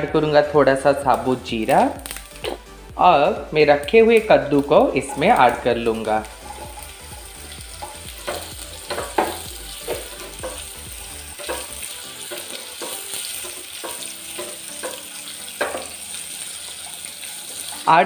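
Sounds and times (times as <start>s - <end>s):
pumpkin frying in hot oil: 0.6s - 18.0s
spatula scraping a pan: 6.3s - 17.7s.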